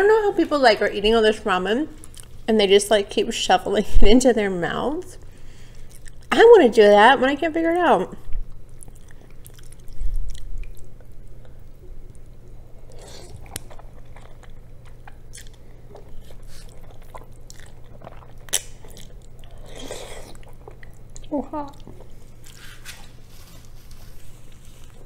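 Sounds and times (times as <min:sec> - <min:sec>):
wet chewing of noodles: 0:05.6 - 0:06.3, 0:08.5 - 0:25.0
mouth clicks and smacks: 0:17.5 - 0:19.2.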